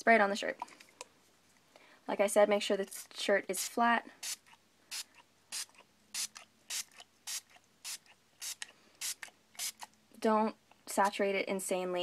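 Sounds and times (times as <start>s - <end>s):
spray bottle hissing sprays: 4.2s - 9.9s.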